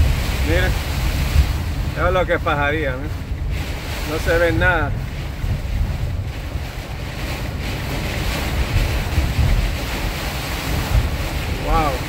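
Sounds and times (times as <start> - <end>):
heavy rain on a car: 0.0 - 12.0
tyres on flooded road: 0.0 - 12.0
wind buffeting a car: 0.0 - 12.0.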